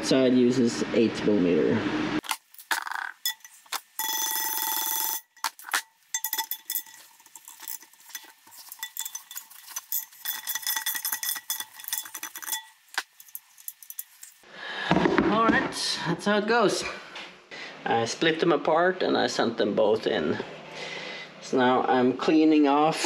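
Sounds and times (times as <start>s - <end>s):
metal rim ringing: 3.2s - 14.3s.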